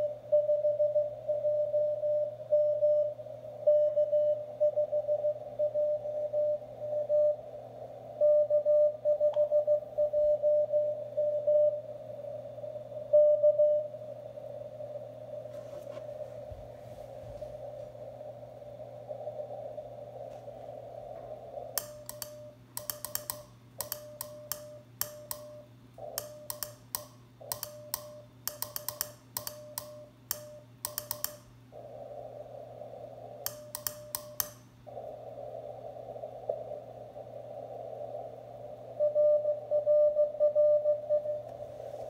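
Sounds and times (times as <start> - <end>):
radio receiver hiss: 6.5 - 8.3, 10.9 - 13.1, 13.9 - 39.7, 41.4 - 42.0
morse code beeps: 39.0 - 41.4.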